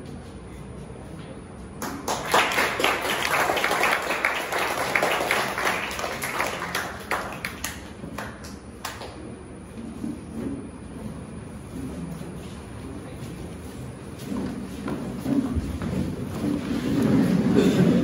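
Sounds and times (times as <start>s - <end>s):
group applauding: 1.8s - 9.3s.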